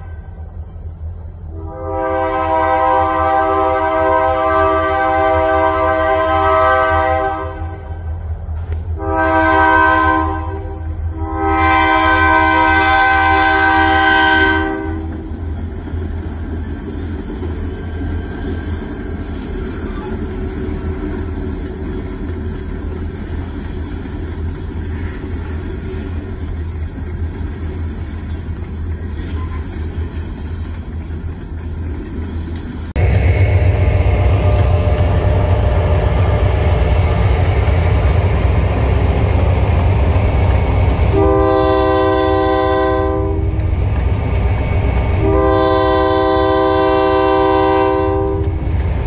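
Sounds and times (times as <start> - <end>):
rumble of passing freight train: 0.0 - 49.0
locomotive air horn blasts: 1.5 - 8.0, 9.0 - 15.3, 41.1 - 43.6, 45.2 - 48.6.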